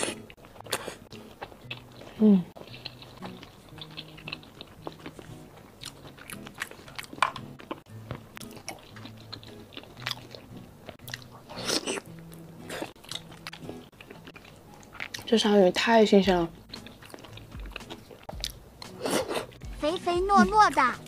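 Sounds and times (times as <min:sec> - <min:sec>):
quiet background music: 0:00.0 - 0:21.0
wet chewing clicks and smacks: 0:00.1 - 0:15.6, 0:16.3 - 0:19.6
loud bite: 0:11.0 - 0:13.8, 0:16.7 - 0:19.6.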